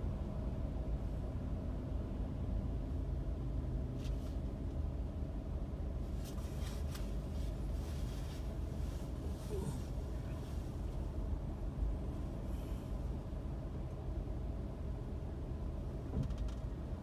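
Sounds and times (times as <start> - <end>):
car idling inside cabin: 0.0 - 17.0
faint rustles: 6.0 - 11.2.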